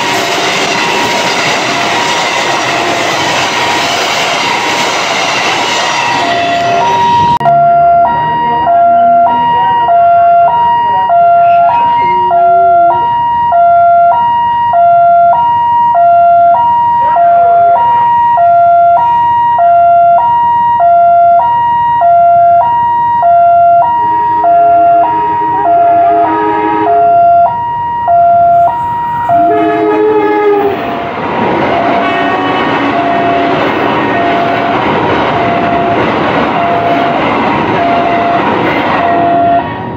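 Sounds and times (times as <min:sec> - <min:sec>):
train wheels rumbling on rails: 0:00.0 - 0:07.5, 0:28.5 - 0:39.9
train horn blasts: 0:05.9 - 0:07.4, 0:24.0 - 0:27.4, 0:28.5 - 0:30.9, 0:31.8 - 0:34.8, 0:37.8 - 0:39.7
level crossing two-tone alarm: 0:06.1 - 0:30.1, 0:32.9 - 0:39.8.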